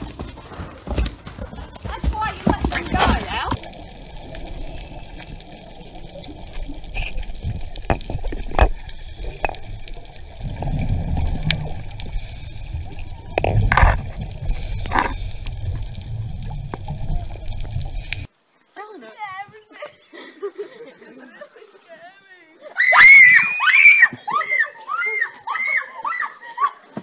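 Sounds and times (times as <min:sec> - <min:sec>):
underwater gurgling and bubbling: 0:03.4 - 0:18.3.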